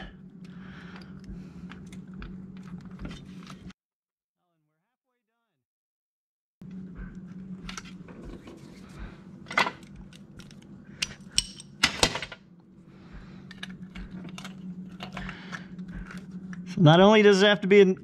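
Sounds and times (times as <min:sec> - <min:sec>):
low steady hum: 0:00.0 - 0:03.7, 0:06.6 - 0:18.0
metal tool clicks and clinks: 0:10.4 - 0:11.8.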